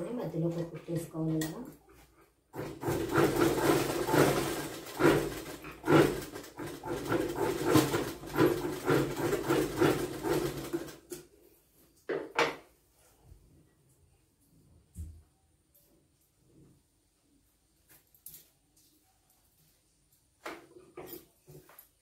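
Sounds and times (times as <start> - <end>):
sewing machine stitching: 2.6 - 11.2.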